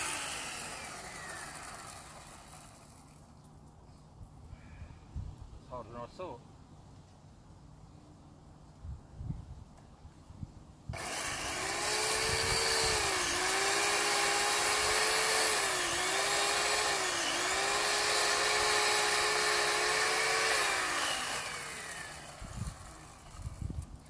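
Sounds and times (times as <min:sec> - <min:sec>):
chainsaw cutting tree trunk: 0:00.0 - 0:03.1, 0:11.0 - 0:23.7.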